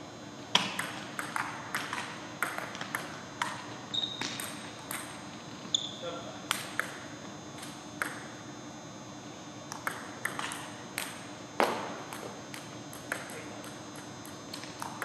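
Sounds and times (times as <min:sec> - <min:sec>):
table tennis ball hits: 0:00.6 - 0:03.6, 0:06.5 - 0:07.0, 0:08.0 - 0:08.3, 0:09.7 - 0:12.4.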